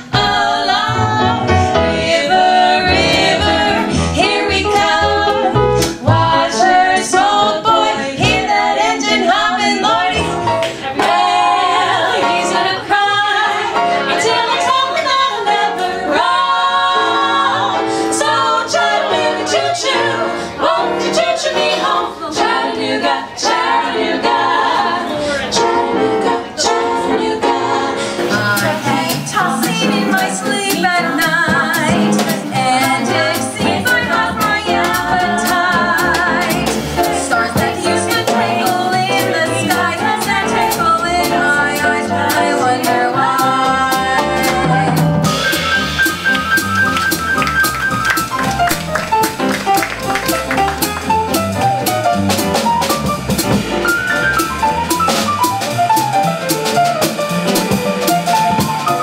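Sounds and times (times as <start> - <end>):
women singing in harmony: 0.0 - 45.5.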